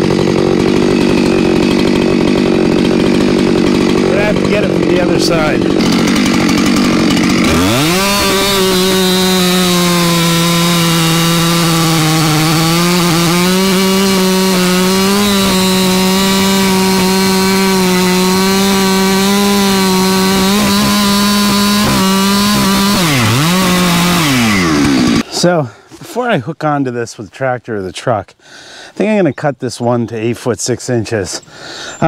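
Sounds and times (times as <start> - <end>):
chainsaw cutting wood: 0.0 - 25.5.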